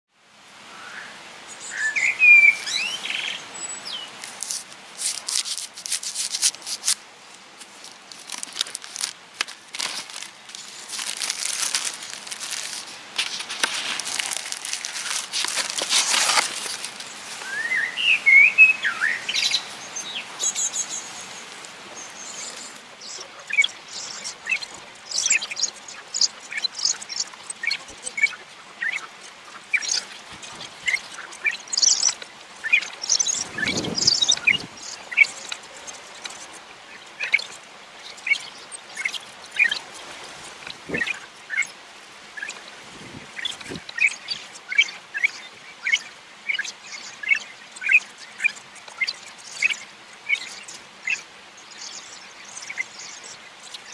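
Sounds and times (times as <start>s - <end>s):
birds chirping: 0.7s - 53.9s
plastic wrap crinkling and tearing: 4.2s - 7.0s, 7.6s - 17.5s.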